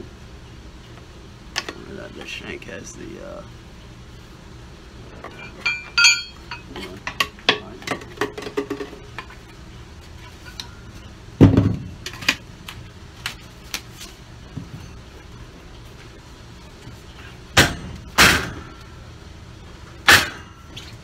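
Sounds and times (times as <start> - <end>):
metal chisel bits clinking: 5.4 - 6.7
ringing metal strike: 5.7 - 6.6.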